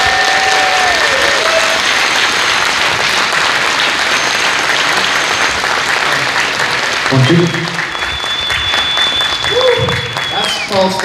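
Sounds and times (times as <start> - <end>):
audience applauding: 0.0 - 11.0
held whistle-like tone: 4.1 - 5.8, 7.8 - 10.9.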